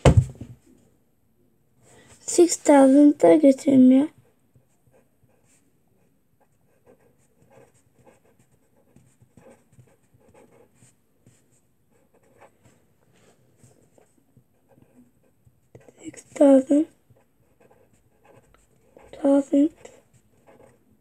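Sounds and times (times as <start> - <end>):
pen scratching on paper: 4.6 - 12.8, 13.6 - 20.9.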